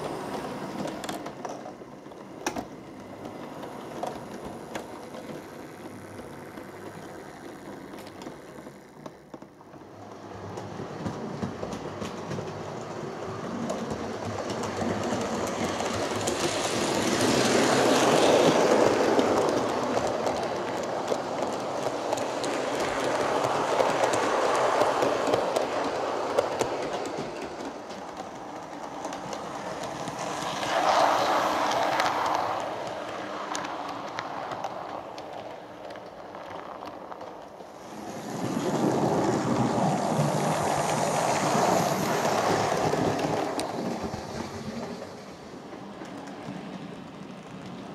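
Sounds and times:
model trains rattling on track: 0.0s - 47.9s.

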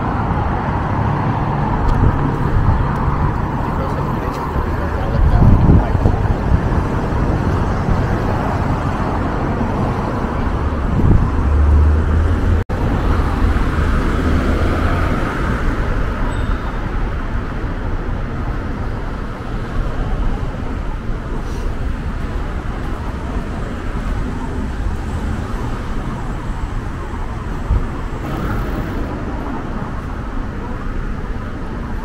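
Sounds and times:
cars passing: 0.0s - 32.0s
heavy vehicle low rumble: 16.8s - 32.0s.

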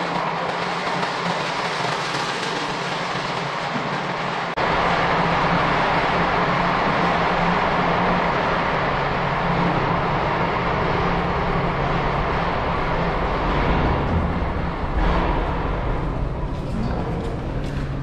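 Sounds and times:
underground station rumble: 0.0s - 18.0s
low hum: 4.5s - 18.0s.

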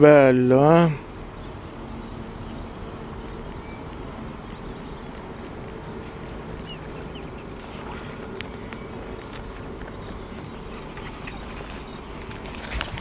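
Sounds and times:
steady low rumble: 0.6s - 13.0s
faint high bird peeps: 5.0s - 9.4s.

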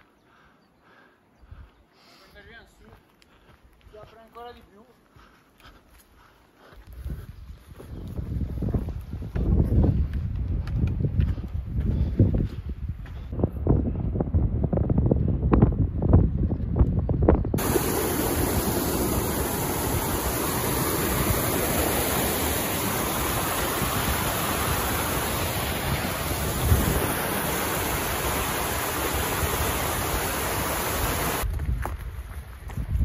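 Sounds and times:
wind buffeting microphone: 6.8s - 33.0s
stream rushing over rocks: 17.6s - 31.4s.

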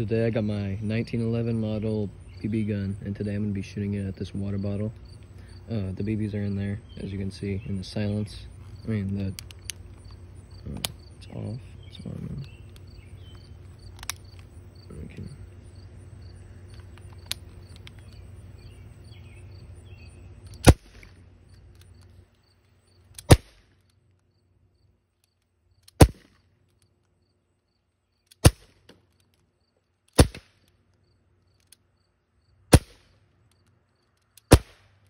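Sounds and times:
crickets chirping: 0.0s - 35.0s
bb pistol shots popping: 20.6s - 21.2s, 23.1s - 23.7s, 25.9s - 26.4s, 28.3s - 29.0s, 30.1s - 30.6s, 32.7s - 33.1s, 34.4s - 35.0s.

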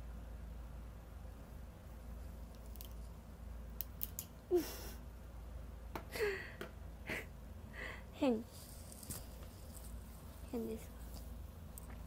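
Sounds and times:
woman laughing breathily: 4.5s - 5.1s, 6.1s - 8.1s.

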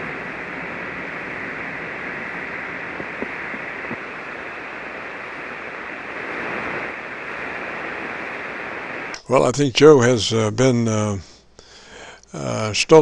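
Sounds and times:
radio static hiss: 0.0s - 13.0s
faint clicks: 2.9s - 4.1s.

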